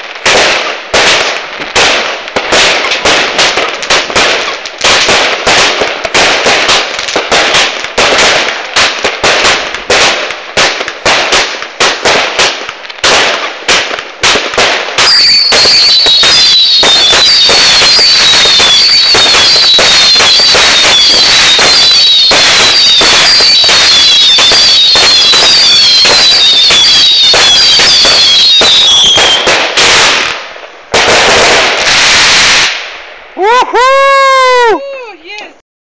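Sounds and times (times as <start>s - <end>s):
fireworks bangs: 0.0s - 34.6s
fireworks crackle: 0.0s - 35.5s
falling firework whistles: 15.0s - 30.3s.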